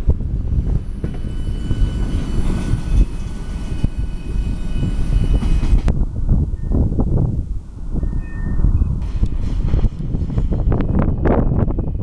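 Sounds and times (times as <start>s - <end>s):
train wheels rumbling on rail: 0.0s - 12.0s.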